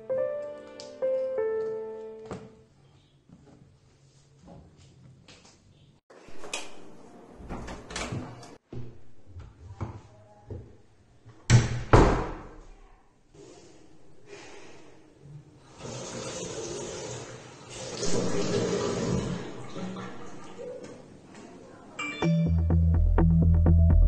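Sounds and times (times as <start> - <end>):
wooden door banging shut: 11.5 - 12.6.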